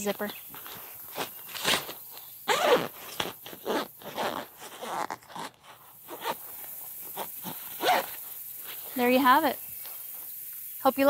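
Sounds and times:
zipper being pulled closed: 0:00.6 - 0:08.2.

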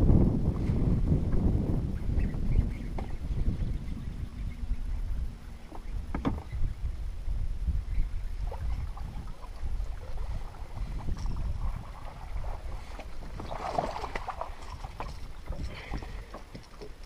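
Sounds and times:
waves lapping against boat hull: 0:08.3 - 0:17.0.

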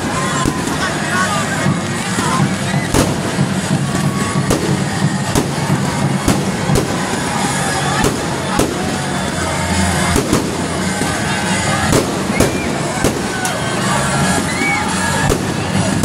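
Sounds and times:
fireworks bangs: 0:00.0 - 0:16.0
steady background din: 0:00.0 - 0:16.0.

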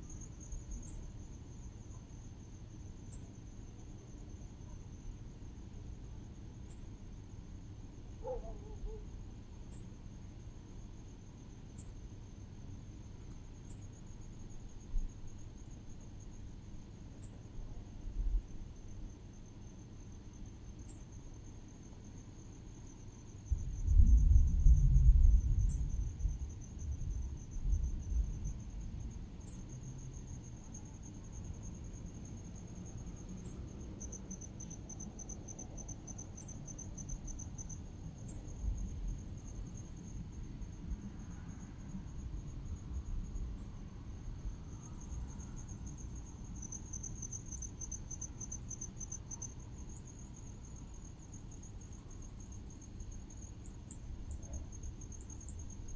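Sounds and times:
crickets chirping: 0:00.0 - 0:55.9
wind rumble on microphone: 0:23.4 - 0:29.5.

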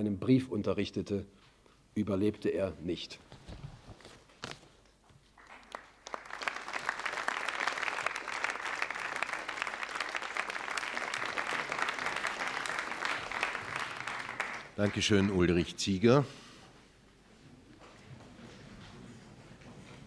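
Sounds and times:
audience applauding: 0:05.4 - 0:15.7.

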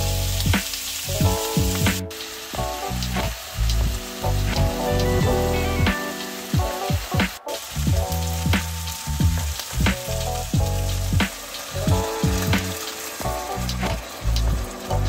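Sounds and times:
background music with pulsing bass: 0:00.0 - 0:15.0
food sizzling in a pan: 0:00.0 - 0:15.0.

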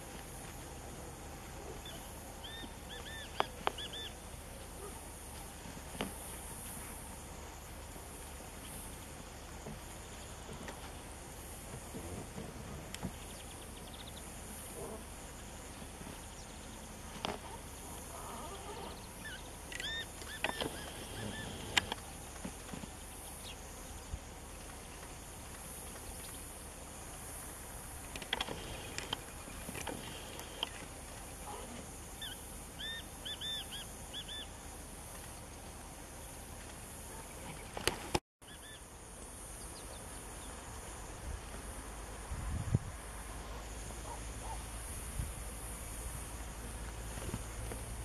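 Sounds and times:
steady outdoor hiss: 0:00.0 - 0:48.0
small bird chirping: 0:01.8 - 0:04.2, 0:18.9 - 0:21.6.

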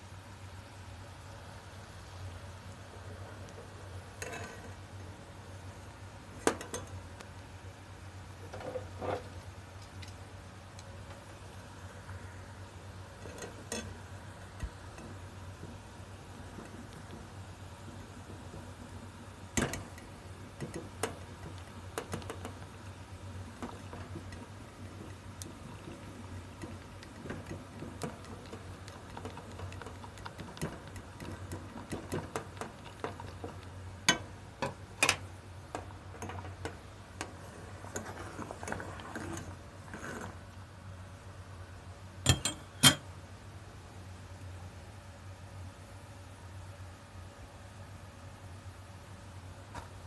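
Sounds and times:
low steady hum: 0:00.0 - 0:50.0
chopsticks tapping on pot: 0:19.6 - 0:37.4.

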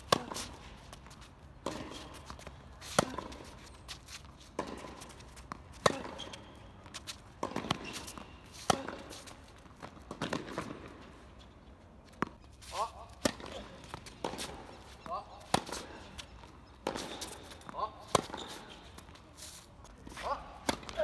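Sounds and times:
tennis ball struck by rackets: 0:00.0 - 0:00.6, 0:01.6 - 0:03.5, 0:04.5 - 0:11.0, 0:12.2 - 0:18.6, 0:20.2 - 0:21.0
tennis ball bouncing: 0:00.0 - 0:11.2, 0:12.1 - 0:19.2, 0:20.2 - 0:21.0.

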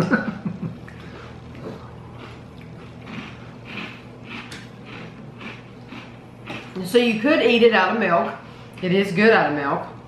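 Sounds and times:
faint steady hum: 0:00.0 - 0:10.0
crunchy cereal being chewed: 0:01.5 - 0:06.8.

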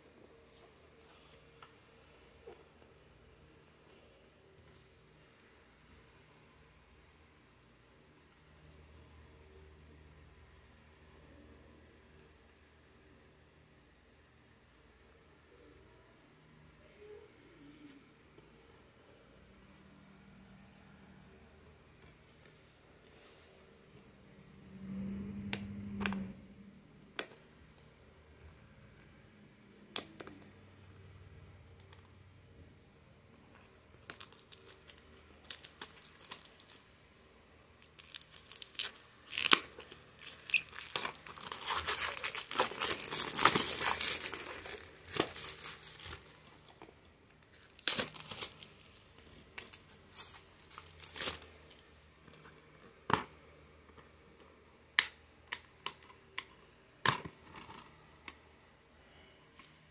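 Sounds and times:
plastic shrink-wrap crinkling: 0:33.5 - 0:36.8, 0:37.7 - 0:51.8.

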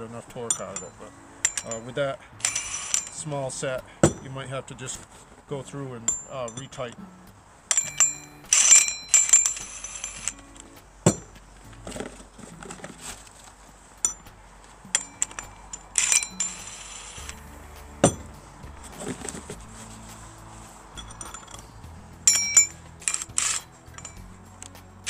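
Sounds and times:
metal nuts and washers clinking: 0:00.0 - 0:05.1, 0:05.7 - 0:25.0
cordless impact wrench spinning: 0:00.5 - 0:03.3, 0:07.7 - 0:14.2, 0:14.9 - 0:18.3, 0:22.3 - 0:24.3.

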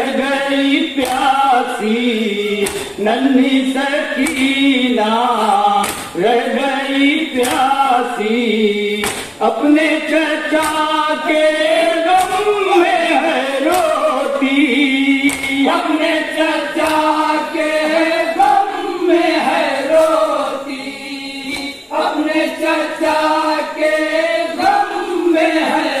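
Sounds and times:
men chanting in unison: 0:00.0 - 0:26.0
chest-beating slaps: 0:01.0 - 0:01.4, 0:02.6 - 0:03.0, 0:04.2 - 0:04.7, 0:05.4 - 0:06.2, 0:07.4 - 0:07.8, 0:09.0 - 0:09.4, 0:10.5 - 0:11.5, 0:12.1 - 0:17.3, 0:19.8 - 0:20.3, 0:21.4 - 0:22.0.

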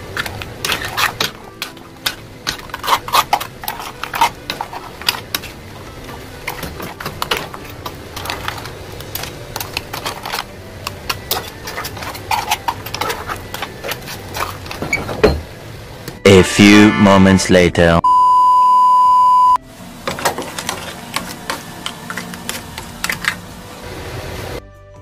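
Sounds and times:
spoon scraping in frying pan: 0:00.1 - 0:14.8.

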